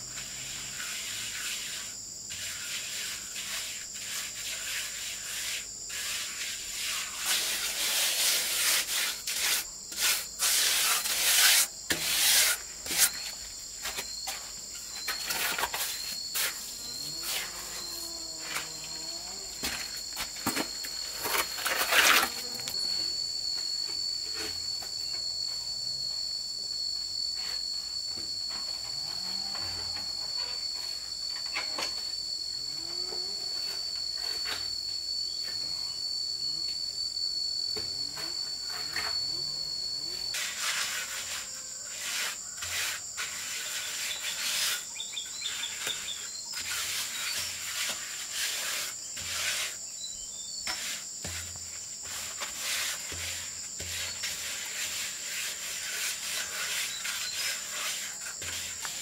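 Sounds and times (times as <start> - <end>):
insects shrilling: 0.0 - 59.0
trowel scraping mortar on brick: 0.8 - 18.7, 19.6 - 22.8, 40.3 - 49.8, 50.7 - 59.0.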